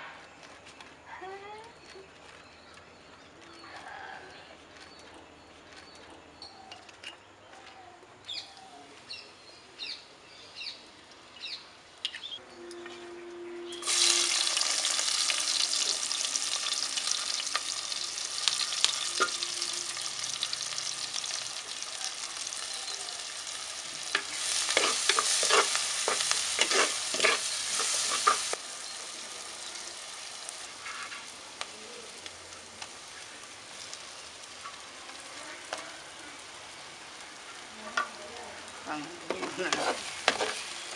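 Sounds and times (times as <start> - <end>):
onions sizzling in hot oil: 13.8 - 40.9
wooden spoon stirring and scraping: 24.1 - 28.6, 39.1 - 40.7.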